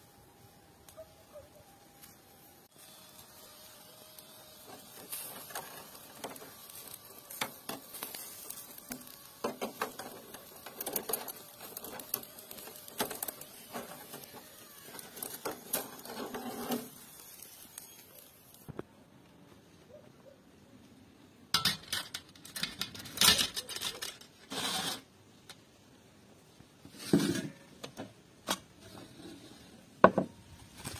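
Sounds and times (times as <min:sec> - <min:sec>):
meat sizzling on charcoal: 0:00.0 - 0:18.8.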